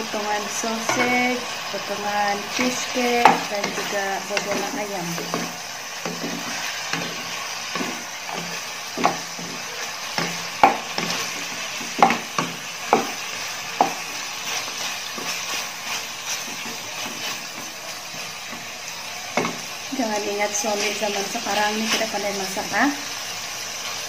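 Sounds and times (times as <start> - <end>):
frying sizzle: 0.0 - 24.0
spatula scraping a wok: 2.3 - 19.9.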